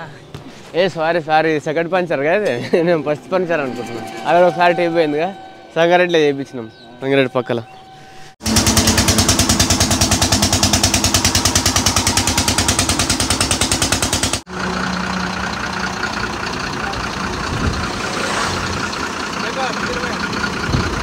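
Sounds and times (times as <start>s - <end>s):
air compressor chugging: 8.4s - 18.0s
engine idling with low hum: 8.4s - 21.0s.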